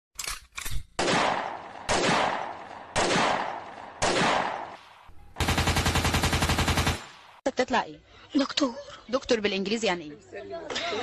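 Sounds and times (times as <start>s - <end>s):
loud gunshots: 1.0s - 7.4s.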